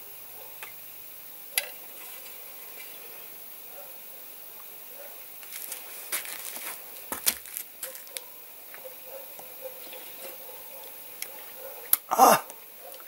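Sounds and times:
snow crunching: 5.4 - 8.1.

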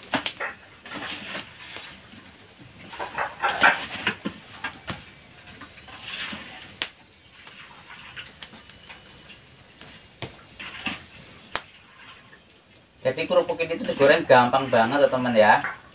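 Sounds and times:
metal utensils scraping a wok: 0.0 - 9.6, 10.4 - 12.4
frying oil hissing: 0.0 - 15.9.

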